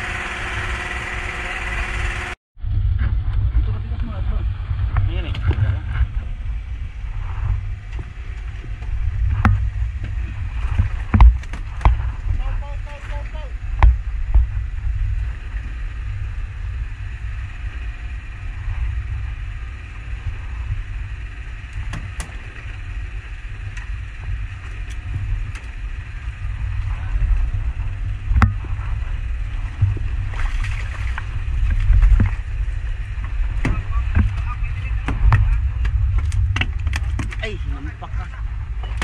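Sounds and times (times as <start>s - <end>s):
boat engine rumbling: 0.0s - 39.0s
fish splashing: 29.7s - 33.5s.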